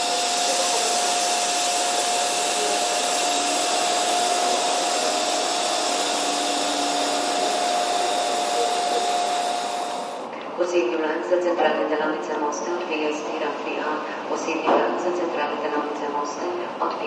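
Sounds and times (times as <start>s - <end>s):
steady whine: 0.0s - 11.4s
train cooling blowers: 0.0s - 17.0s.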